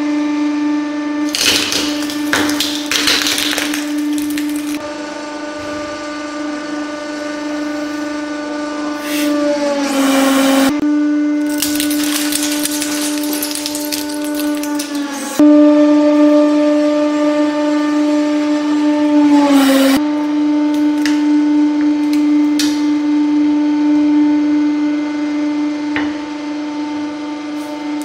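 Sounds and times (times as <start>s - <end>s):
loud crunching and cracking: 1.3s - 4.8s, 11.4s - 15.2s
wooden box cracking and splintering: 1.3s - 4.8s, 11.4s - 15.1s.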